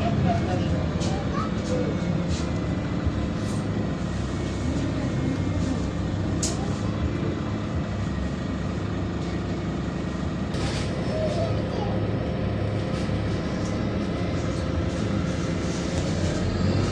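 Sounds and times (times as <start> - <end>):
bus engine and road noise: 0.0 - 16.9.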